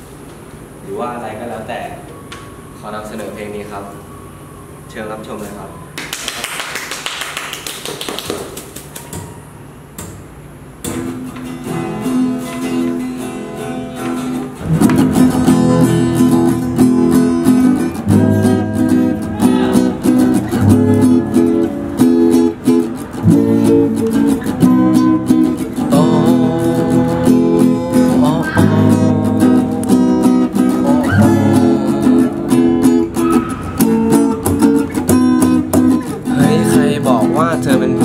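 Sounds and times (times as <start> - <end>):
acoustic guitars strumming: 8.8 - 38.0.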